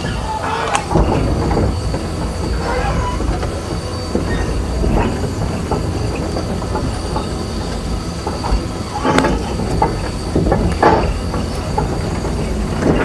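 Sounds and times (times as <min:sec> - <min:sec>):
diesel engine running: 0:00.0 - 0:13.0
track chains squeaking and knocking: 0:00.0 - 0:13.0.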